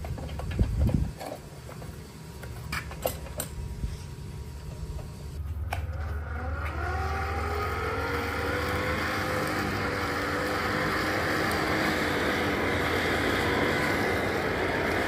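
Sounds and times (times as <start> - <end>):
hand-cranked blower whining: 4.7 - 15.0.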